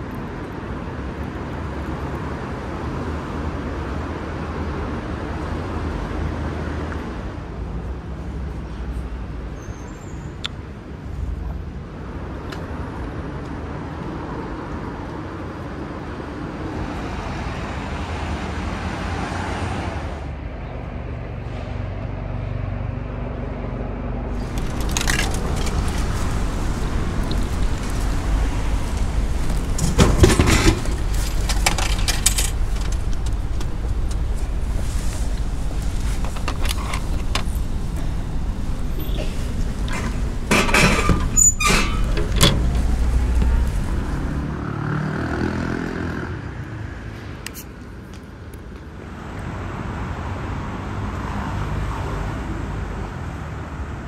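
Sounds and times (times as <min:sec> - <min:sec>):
street traffic: 0:00.0 - 0:54.0
coins clicking into coin slot: 0:30.3 - 0:33.0.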